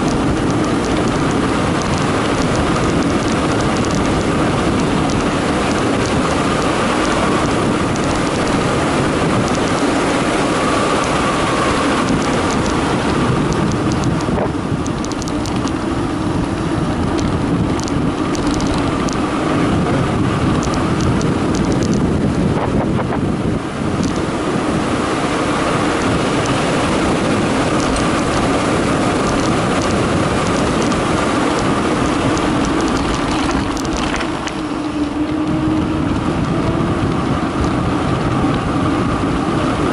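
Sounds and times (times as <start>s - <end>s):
bike rattles and clicks: 0.0s - 39.9s
wind rushing over microphone: 0.0s - 39.9s
tyres rolling on concrete: 26.0s - 38.6s.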